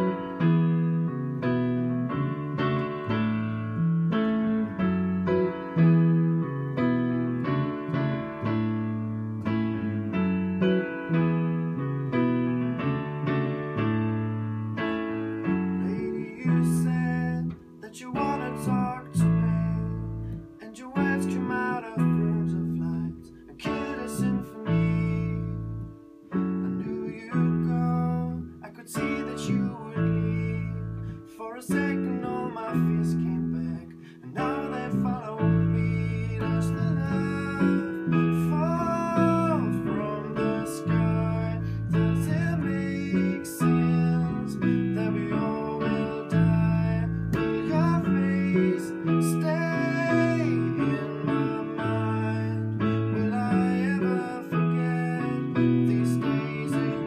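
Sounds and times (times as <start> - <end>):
keyboard: 0.0 - 57.0
man singing: 15.0 - 57.0.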